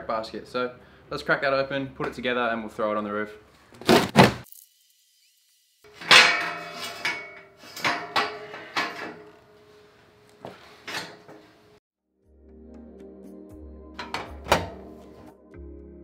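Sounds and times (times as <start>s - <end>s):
metal tubes clanking: 5.9s - 9.4s.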